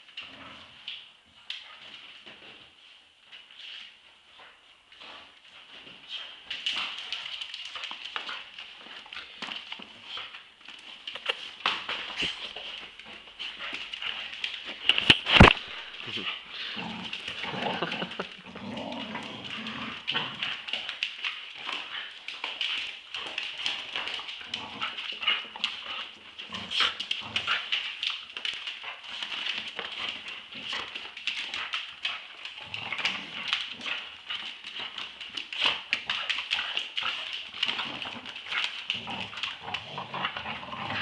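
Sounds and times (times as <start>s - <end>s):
dogs growling while play-fighting: 0.1s - 1.1s, 5.0s - 41.0s
clicks and scuffles of tussle: 5.7s - 16.3s.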